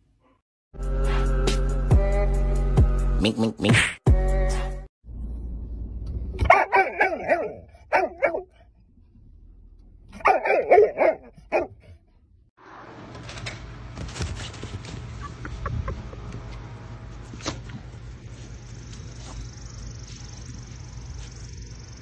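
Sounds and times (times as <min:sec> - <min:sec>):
dog barking: 0:06.4 - 0:08.5, 0:10.2 - 0:11.9.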